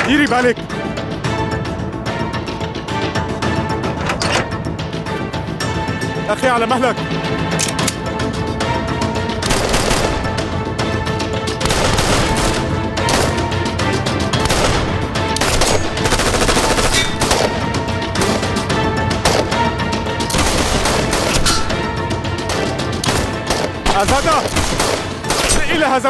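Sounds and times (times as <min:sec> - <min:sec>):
rapid gunshots: 0:09.4 - 0:10.5, 0:11.6 - 0:13.6, 0:14.3 - 0:18.5, 0:19.2 - 0:19.7, 0:20.3 - 0:21.7, 0:22.4 - 0:26.0.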